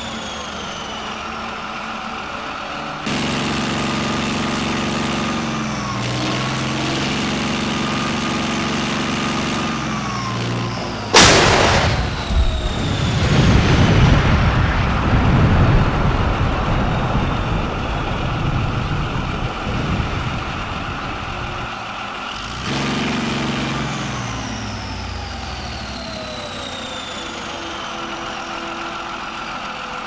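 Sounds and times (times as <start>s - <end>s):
long falling whines: 0.0s - 30.0s
tank engine running: 0.0s - 30.0s
firecracker explosion: 11.1s - 19.0s.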